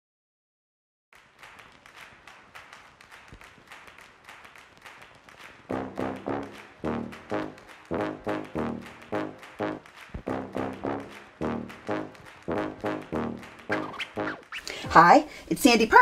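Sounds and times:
low bouncing notes: 0:05.7 - 0:14.6
light rhythmic intro music: 0:05.7 - 0:15.0.

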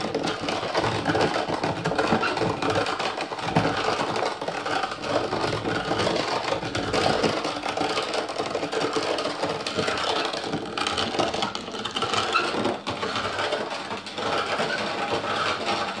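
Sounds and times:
hand-cranked meat grinder turning: 0:00.0 - 0:16.0.

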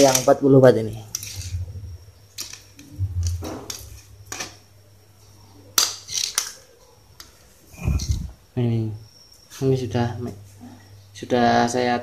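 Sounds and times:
low hum: 0:01.1 - 0:04.6.

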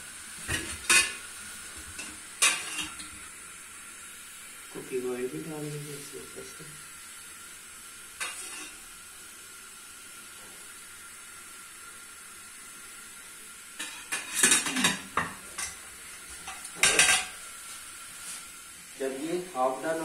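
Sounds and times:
steady low hiss: 0:00.0 - 0:20.0
spoon and lid clattering on pan: 0:02.0 - 0:03.0, 0:13.8 - 0:15.8, 0:16.5 - 0:17.4.

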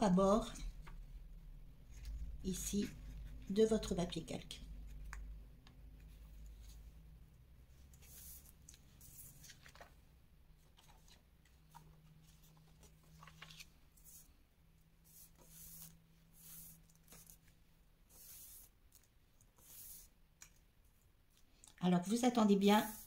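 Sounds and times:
paper rustling: 0:07.9 - 0:14.4, 0:15.1 - 0:20.1.

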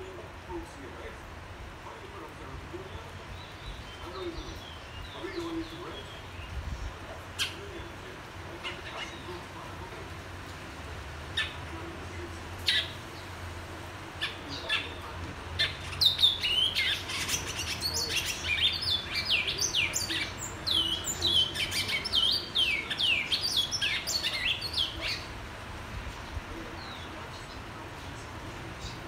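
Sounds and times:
seed-finch singing: 0:14.2 - 0:25.4.

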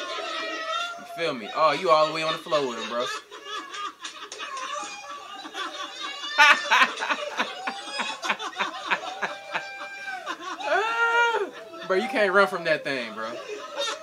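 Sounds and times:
man laughing hard: 0:01.6 - 0:12.1.

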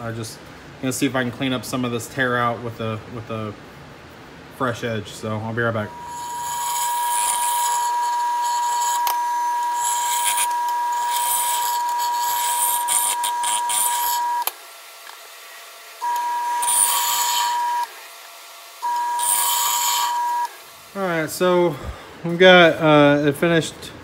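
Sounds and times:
wood lathe motor whine: 0:05.7 - 0:21.4
turning tool cutting wood: 0:05.9 - 0:20.9.

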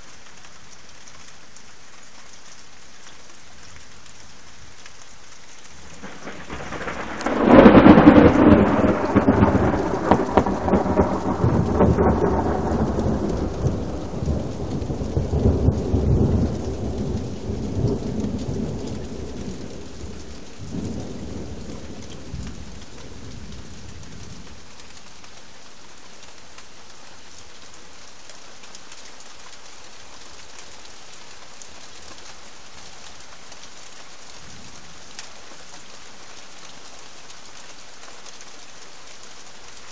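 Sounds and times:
steady rain hissing: 0:00.0 - 0:39.9
thunder clap and rumble: 0:05.8 - 0:24.4.

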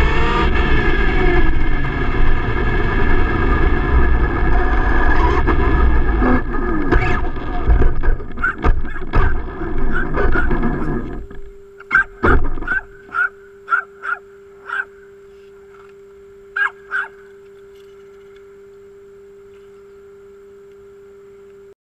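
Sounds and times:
faint steady hum: 0:00.0 - 0:21.8
small dog yapping: 0:08.4 - 0:10.6, 0:11.9 - 0:14.9, 0:16.6 - 0:17.3.

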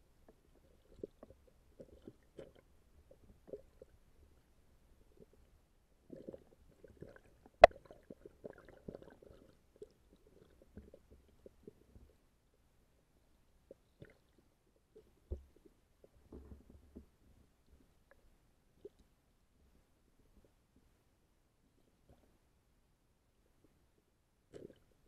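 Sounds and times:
fish feeding underwater pops: 0:06.1 - 0:12.0.

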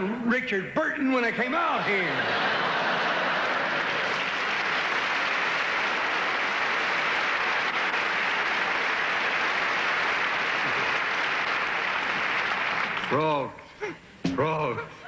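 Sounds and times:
audience applauding: 0:02.1 - 0:13.2.

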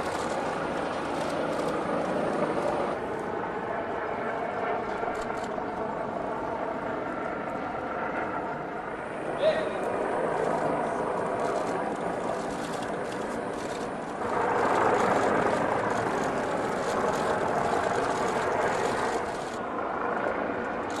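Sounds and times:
faint irregular clicks: 0:11.4 - 0:19.6.

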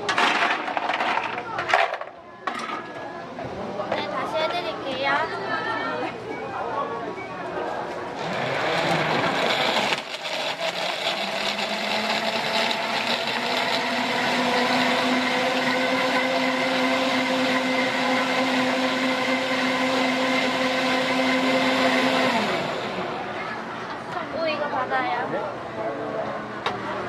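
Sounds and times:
blender crushing ice: 0:08.2 - 0:23.3.

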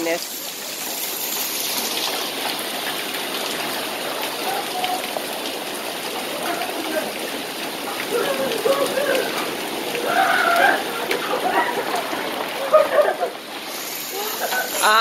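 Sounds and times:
heavy rain and hail: 0:00.0 - 0:15.0
water gushing off roof: 0:00.0 - 0:15.0
faint voices: 0:07.9 - 0:13.0.

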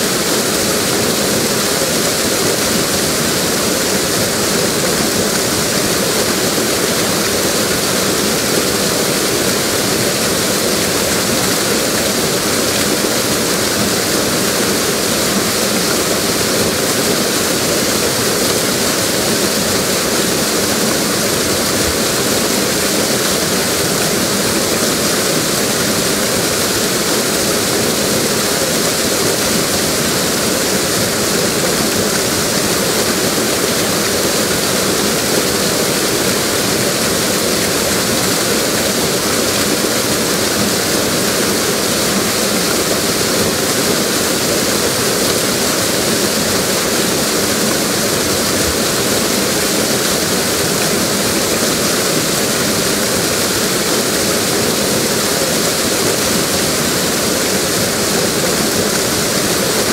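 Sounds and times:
waterfall rushing: 0:00.0 - 0:59.9.

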